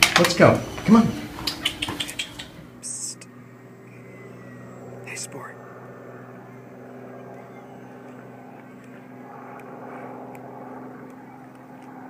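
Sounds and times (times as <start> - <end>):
distant engine droning: 0.0 - 12.0
faint clicks: 1.4 - 2.6, 8.0 - 12.0.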